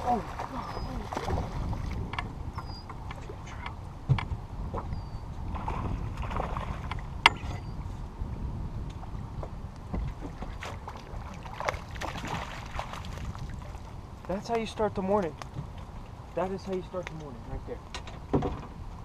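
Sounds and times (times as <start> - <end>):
water lapping at boat hull: 0.0 - 8.0, 8.9 - 14.3
wind on microphone: 0.0 - 16.6.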